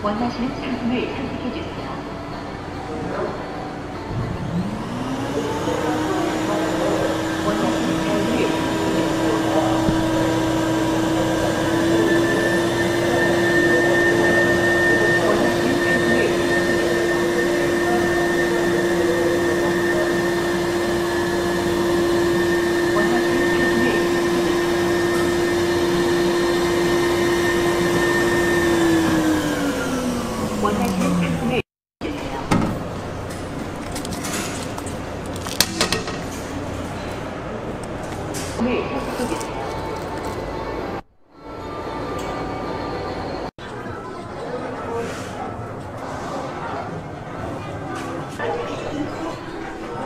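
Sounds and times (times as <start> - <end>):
vacuum pump humming: 4.1 - 31.6.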